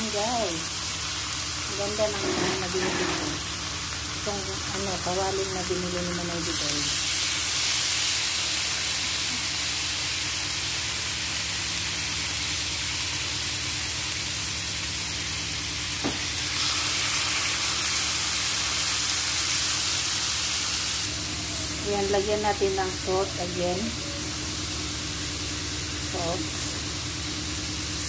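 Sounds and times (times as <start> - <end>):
low constant hum: 0.0 - 7.2, 21.0 - 27.9
bacon sizzling in a frying pan: 0.0 - 28.0.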